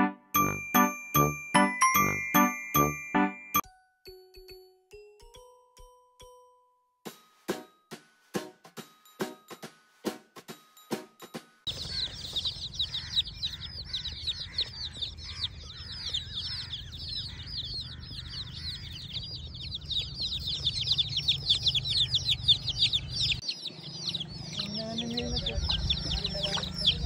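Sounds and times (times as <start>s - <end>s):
baby chicks peeping: 0.0s - 3.2s, 11.7s - 27.0s.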